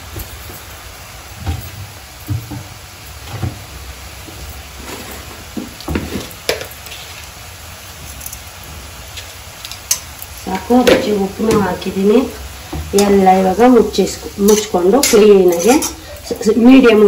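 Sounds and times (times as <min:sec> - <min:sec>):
beetroot sizzling in a pan: 0:00.0 - 0:17.0
spatula scraping a pan: 0:14.4 - 0:16.2.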